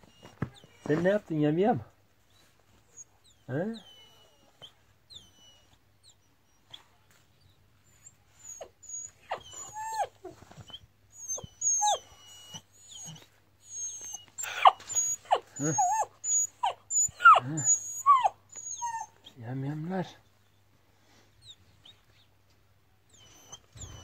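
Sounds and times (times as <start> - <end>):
puppies whining and yelping: 0.0 - 1.1, 2.3 - 6.8, 7.9 - 19.4, 23.1 - 24.0.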